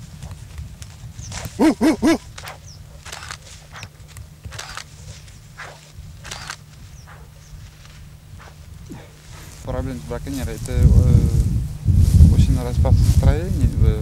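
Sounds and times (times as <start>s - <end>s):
footsteps through tall grass: 0.0s - 14.0s
low steady rumble: 0.0s - 14.0s
loud pitched call: 1.6s - 2.6s.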